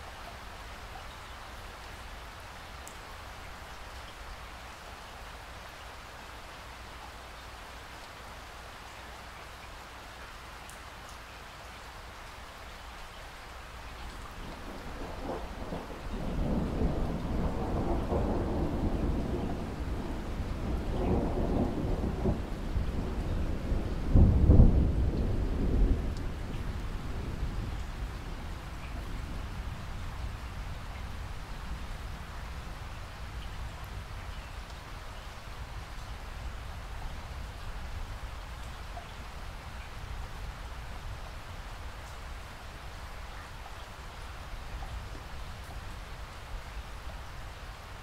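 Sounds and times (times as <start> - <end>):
steady rain: 0.0 - 48.0
thunder rumbling: 14.3 - 34.1.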